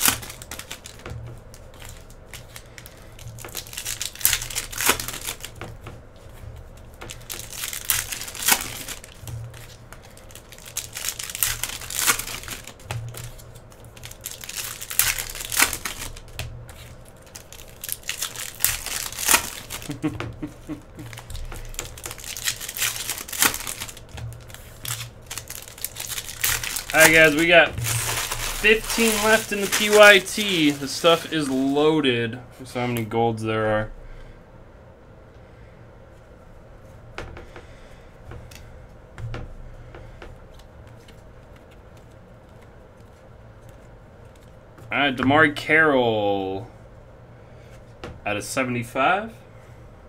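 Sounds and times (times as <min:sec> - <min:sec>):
foil wrappers crinkling and tearing: 0:00.0 - 0:05.8, 0:06.4 - 0:32.1.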